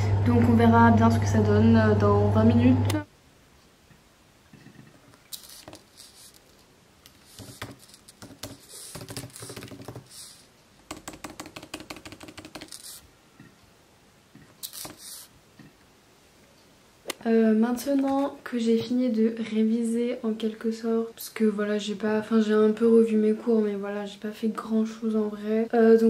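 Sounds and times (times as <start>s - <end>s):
typing on laptop keyboard: 7.3s - 10.2s, 10.9s - 13.0s, 14.6s - 15.2s.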